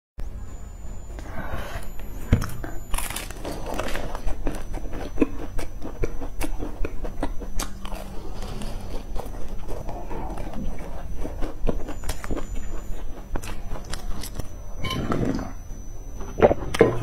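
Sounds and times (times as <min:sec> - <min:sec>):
crunching flaky pastry: 0:02.8 - 0:14.6.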